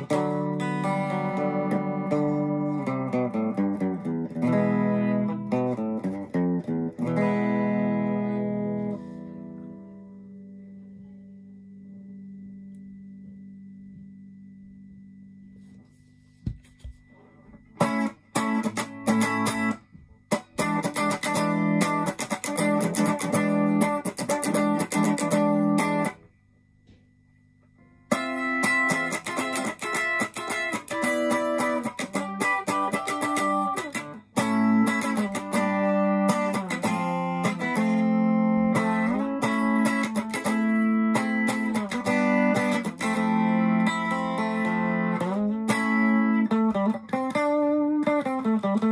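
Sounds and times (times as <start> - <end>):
electric guitar chords: 0.0 - 15.9, 16.5 - 27.0, 27.8 - 48.9.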